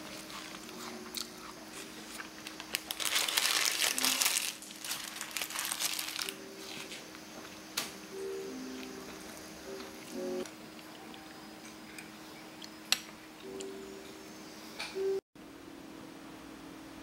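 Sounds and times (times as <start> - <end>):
paper tissue crumpling: 1.7 - 6.9.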